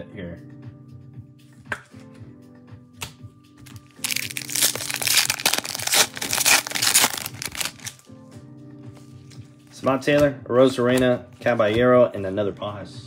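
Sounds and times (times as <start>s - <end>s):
background music: 0.0s - 13.0s
foil wrapper crinkling: 3.7s - 8.0s.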